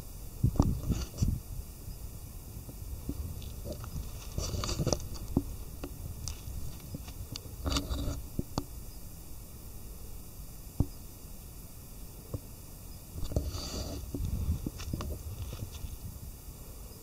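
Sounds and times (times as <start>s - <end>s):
steady low rumble: 0.0s - 13.4s, 14.0s - 17.0s
rustling: 2.8s - 8.8s, 13.1s - 16.4s.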